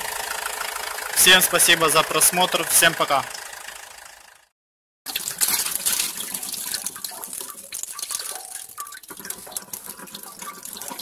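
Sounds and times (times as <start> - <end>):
water pouring from hose into basin: 5.1 - 11.0.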